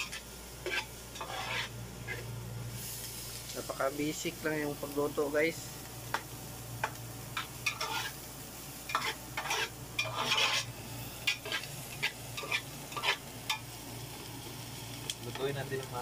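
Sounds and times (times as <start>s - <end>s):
metal spatula scraping a pot: 0.0s - 2.3s, 7.6s - 8.2s, 8.9s - 10.7s, 11.3s - 13.2s
vegetables sizzling: 0.0s - 16.0s.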